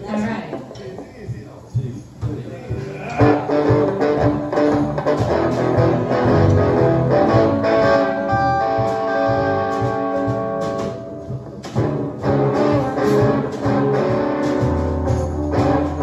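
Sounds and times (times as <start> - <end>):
electric guitar: 2.8 - 16.0
live blues band playing: 2.8 - 16.0.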